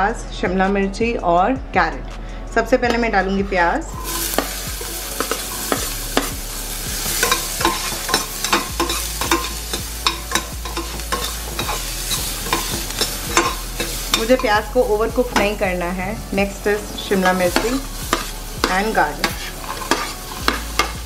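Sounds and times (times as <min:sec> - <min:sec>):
metal utensil scraping pan: 0:03.8 - 0:15.7, 0:16.4 - 0:21.0
onion sizzling in oil: 0:03.9 - 0:21.0.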